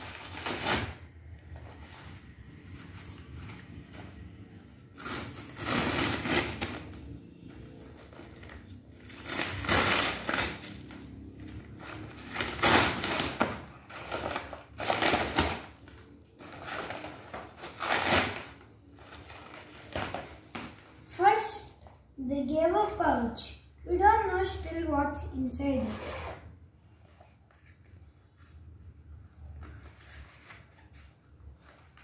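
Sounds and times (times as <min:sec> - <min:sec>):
packaging tearing and crinkling: 0:00.0 - 0:01.0, 0:08.1 - 0:20.6.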